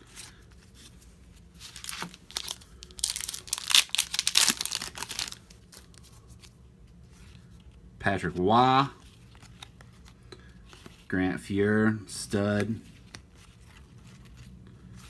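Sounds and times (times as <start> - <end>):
foil wrapper crackling: 1.7 - 6.0.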